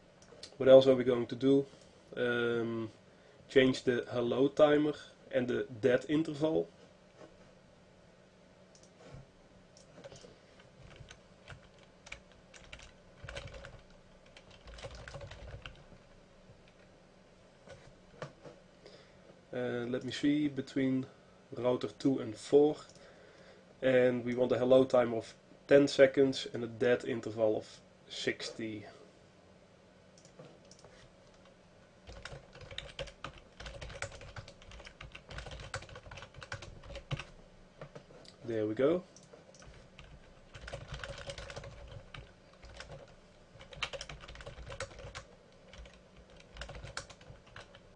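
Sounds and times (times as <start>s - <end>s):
computer keyboard typing: 9.8s - 15.8s, 30.2s - 31.5s, 32.1s - 37.3s, 39.2s - 47.8s.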